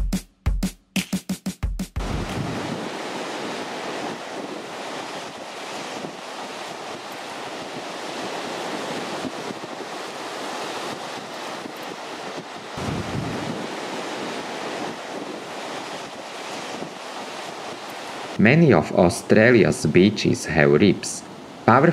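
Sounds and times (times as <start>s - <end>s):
wind buffeting microphone: 2.0s - 18.4s
surf breaking on beach: 2.0s - 21.9s.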